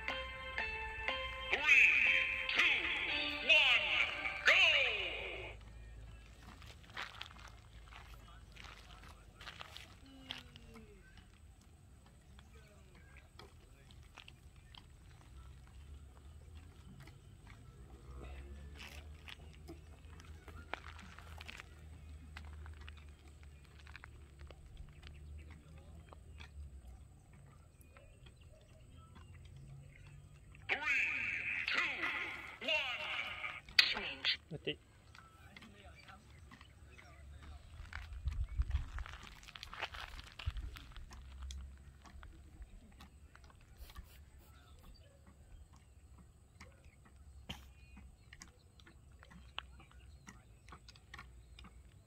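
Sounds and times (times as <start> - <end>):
wind rumble on microphone: 38.1 - 39.2.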